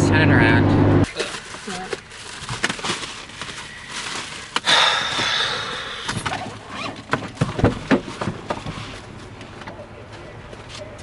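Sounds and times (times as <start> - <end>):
plastic bag rustling: 1.1 - 9.3.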